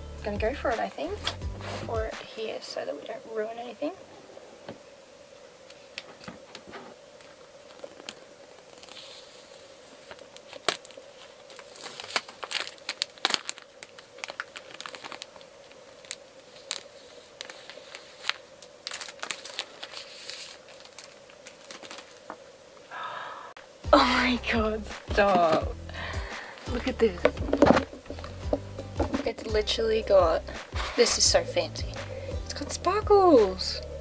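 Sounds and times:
plastic film crinkling and tearing: 7.2 - 22.5.

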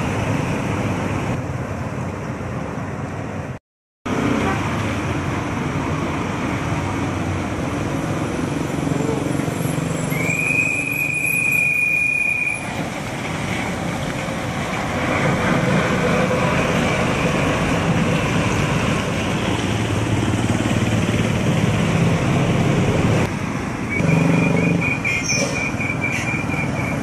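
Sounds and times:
vehicle approaching: 12.7 - 27.0.

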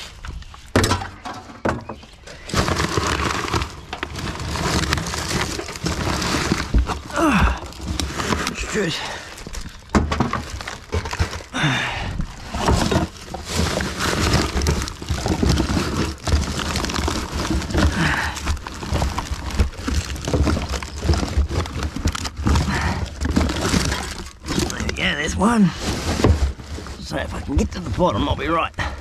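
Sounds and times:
plastic rustling and crinkling: 0.0 - 29.0
items knocking and clattering: 0.4 - 29.0.

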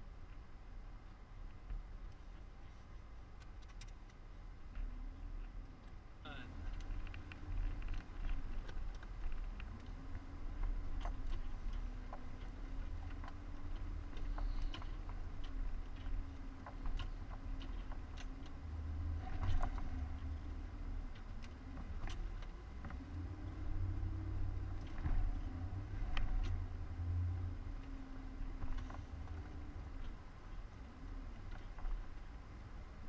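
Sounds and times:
off-road vehicle engine rumbling: 0.0 - 33.0
sharp clicks and ticks: 3.3 - 4.2, 4.8 - 23.1.

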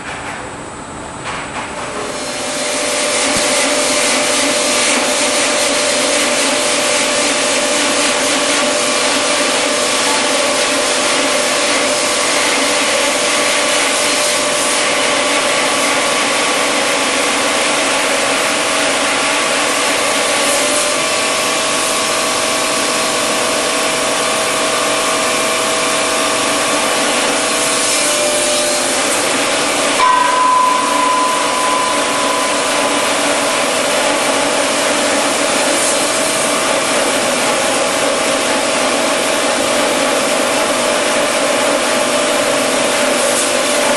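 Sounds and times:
high tone: 30.0 - 36.0.

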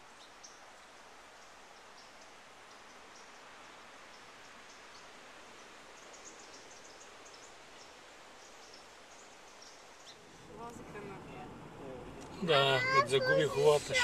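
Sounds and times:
soft steady hiss: 0.0 - 14.0
small birds chirping: 0.1 - 10.7.

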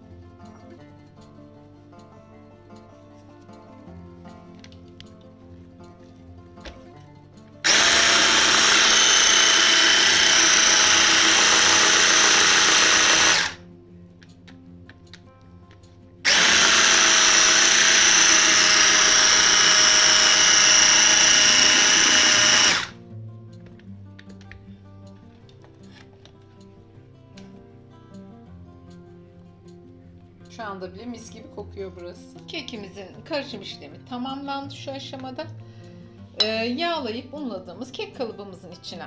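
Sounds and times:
soft background music: 0.0 - 21.2, 21.8 - 39.0
electric hand mixer whirring: 7.6 - 13.6, 16.3 - 23.0.

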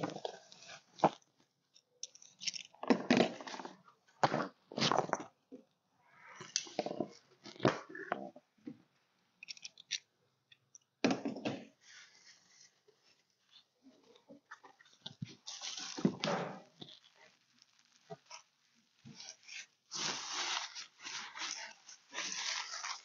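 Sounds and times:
bubble wrap crinkling and rustling: 0.0 - 1.4, 11.8 - 23.0.

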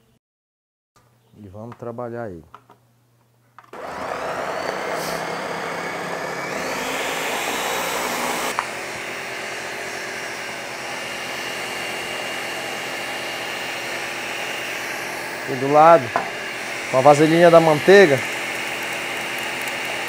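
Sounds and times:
blender motor running: 3.8 - 20.0
blender switch click: 4.6 - 4.9.

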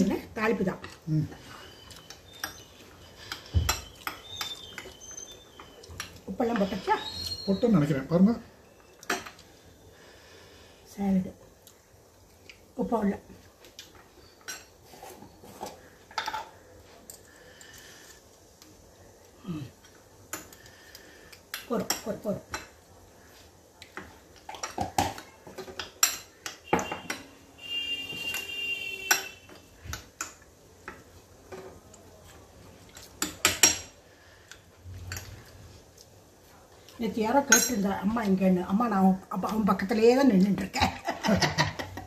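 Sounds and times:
cutlery clinking on plates: 2.0 - 6.6, 15.6 - 17.3, 24.0 - 27.3, 28.0 - 31.8, 33.0 - 34.0.

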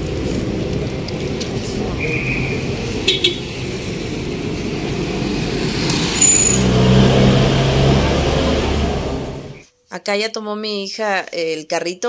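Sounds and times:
vehicle engine running close: 0.0 - 9.6
street traffic: 0.0 - 9.7.

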